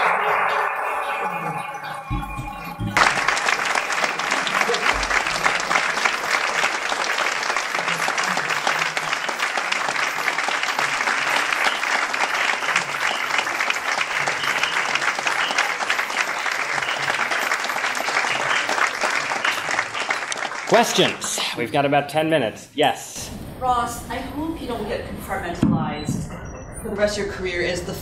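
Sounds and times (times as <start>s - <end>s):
audience applauding: 0.0s - 21.6s.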